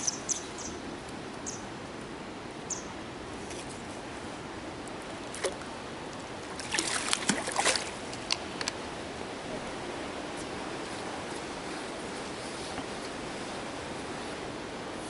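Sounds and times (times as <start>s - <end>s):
net splashing through water: 6.5s - 8.1s.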